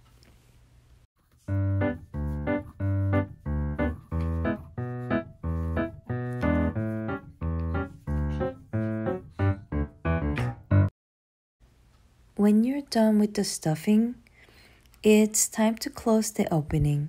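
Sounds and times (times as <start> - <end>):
light keyboard tune: 1.4 - 10.9.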